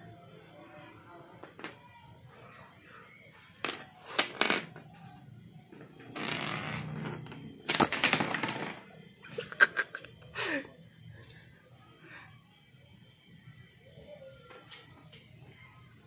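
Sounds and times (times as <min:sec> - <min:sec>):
small metal parts clattering on concrete: 0:03.6 - 0:04.9, 0:06.0 - 0:09.0.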